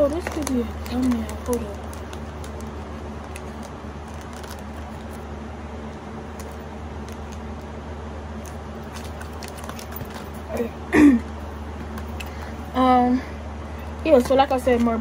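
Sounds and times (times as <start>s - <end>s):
plastic wrapping crinkling: 0.0s - 5.3s, 5.9s - 7.7s, 8.4s - 10.6s.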